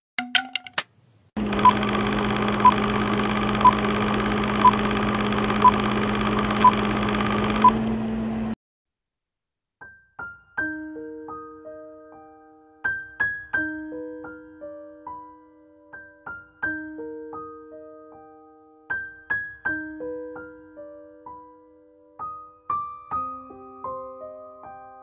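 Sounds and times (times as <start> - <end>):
soft piano melody: 9.8 - 25.0.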